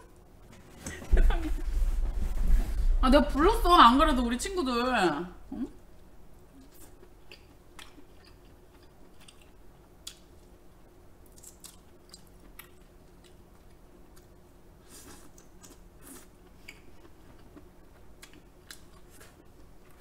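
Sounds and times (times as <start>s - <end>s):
person chewing: 6.6s - 10.2s, 11.3s - 13.4s, 14.9s - 20.0s.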